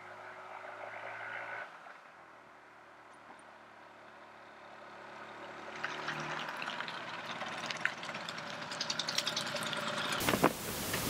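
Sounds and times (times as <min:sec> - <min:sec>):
scooter engine approaching: 0:04.2 - 0:10.2
sharp ticks and crackles: 0:05.8 - 0:10.4.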